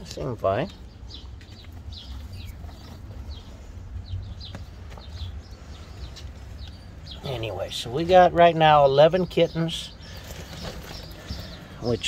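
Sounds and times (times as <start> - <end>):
steady low rumble: 0.0 - 9.3
small birds chirping: 0.0 - 12.0.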